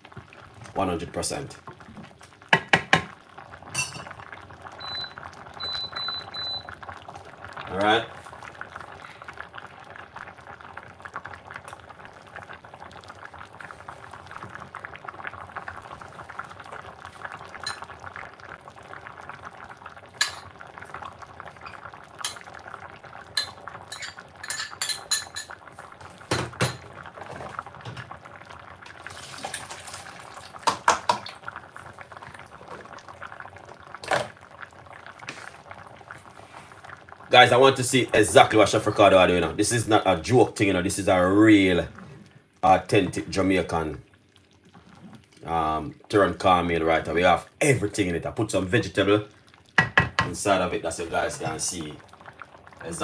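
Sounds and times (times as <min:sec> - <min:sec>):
broth bubbling at a boil: 0:00.0 - 0:53.0
pots and utensils clinking: 0:03.7 - 0:04.2, 0:17.6 - 0:17.9, 0:20.2 - 0:20.5, 0:21.6 - 0:22.5, 0:23.3 - 0:25.6, 0:26.3 - 0:28.0.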